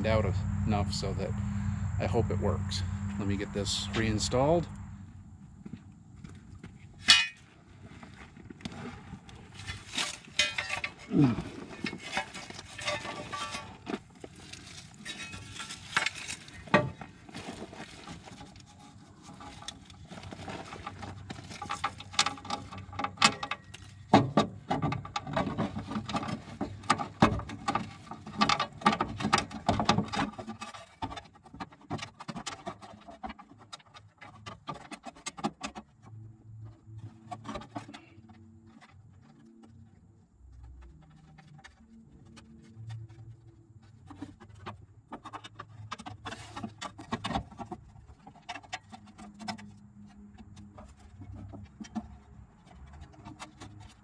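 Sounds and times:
metal clinks knocks and scrapes: 6.2 - 39.8.

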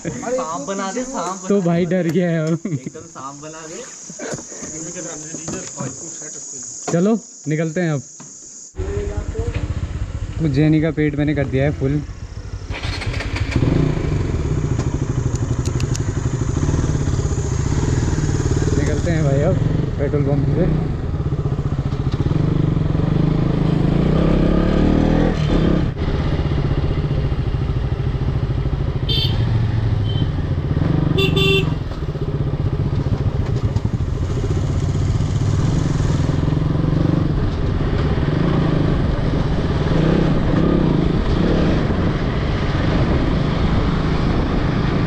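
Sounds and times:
motorcycle engine running: 8.8 - 45.0
vehicle horn toots: 29.1 - 30.4, 31.2 - 31.9.

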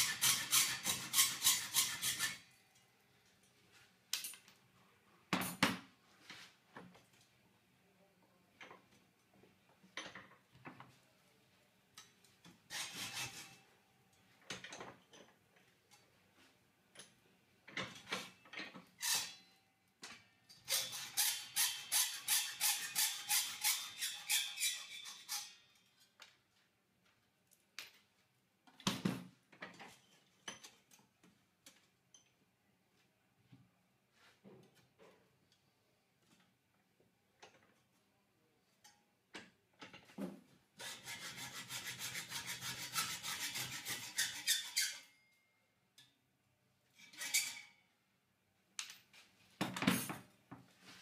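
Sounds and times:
hacksaw cutting steel: 0.0 - 2.5, 12.7 - 13.6, 19.0 - 19.5, 20.6 - 25.8, 40.8 - 45.1, 47.0 - 47.7.

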